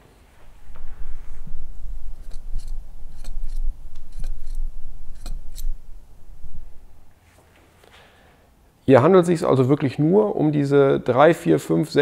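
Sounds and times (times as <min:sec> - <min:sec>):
low rumble: 0:00.4 - 0:07.2.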